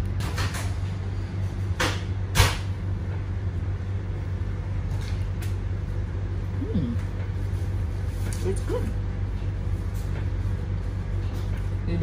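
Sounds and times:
train carriage hum: 0.0 - 12.0.

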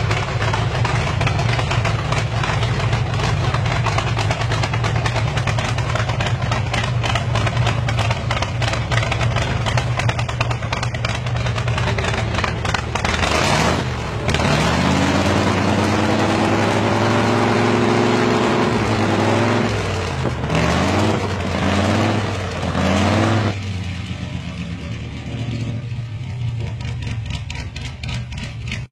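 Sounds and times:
engine idling and revving: 0.0 - 28.9.

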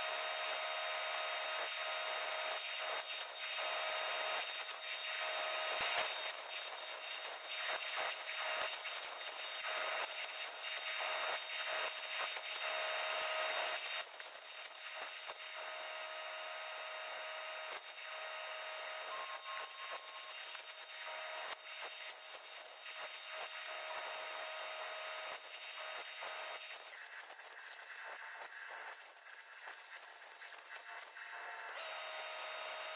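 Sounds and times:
arc welding crackling hiss: 0.0 - 32.9.

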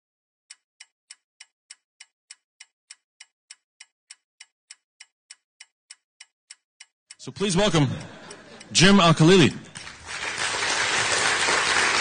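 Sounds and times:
clock ticking: 0.5 - 9.8.

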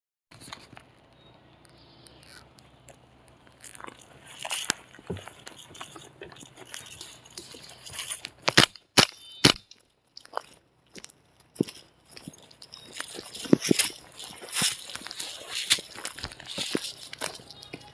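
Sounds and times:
footsteps crunching dry leaves: 2.2 - 17.9
loud sharp cracks: 8.5 - 9.7.

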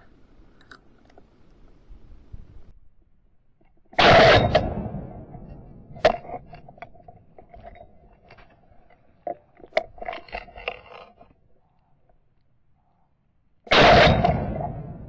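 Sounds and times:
shotgun blast: 4.0 - 5.7, 13.7 - 15.0.

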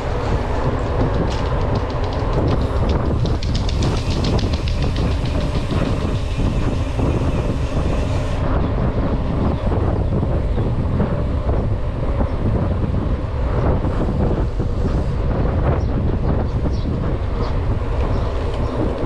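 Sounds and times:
bike tyre rumble on concrete: 0.0 - 19.0
wind rush over microphone: 0.0 - 19.0
bike freewheel clicks: 0.8 - 8.1.

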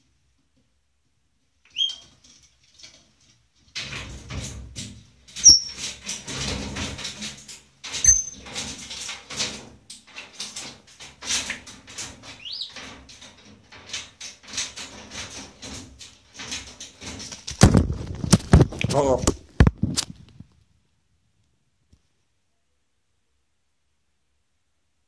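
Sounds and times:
wings flapping and scuffling: 2.0 - 20.6
parrot whistling: 5.4 - 5.8.

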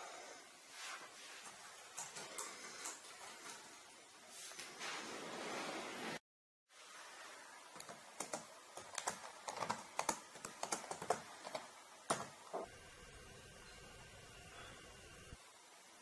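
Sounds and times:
laptop keyboard typing: 1.9 - 3.1, 7.8 - 12.7.

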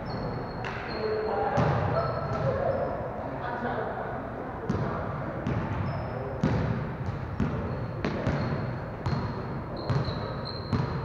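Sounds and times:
shoe squeaks: 0.0 - 3.0, 5.8 - 6.3, 7.6 - 11.0
basketballs bouncing on court: 1.5 - 2.7, 4.7 - 11.0.

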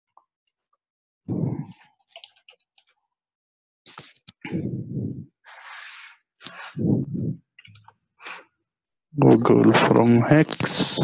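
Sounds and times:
low vocal sounds: 1.3 - 1.8, 4.4 - 5.4, 6.7 - 7.5
keyboard clicking: 2.1 - 2.6.

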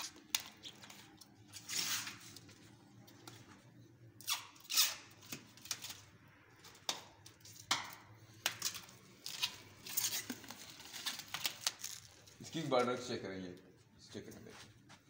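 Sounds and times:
plastic film ripping off: 8.5 - 12.3.

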